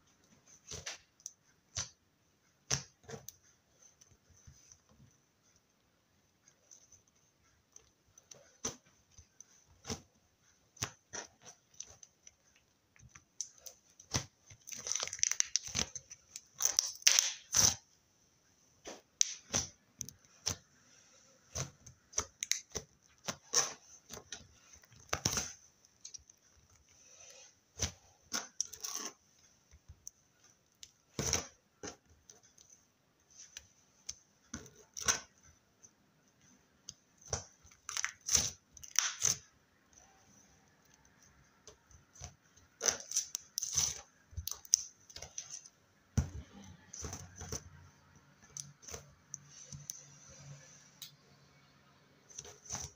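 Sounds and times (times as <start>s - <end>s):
slime crackling and popping: 10.7s - 17.8s, 21.5s - 26.9s, 37.2s - 39.5s, 42.1s - 45.6s.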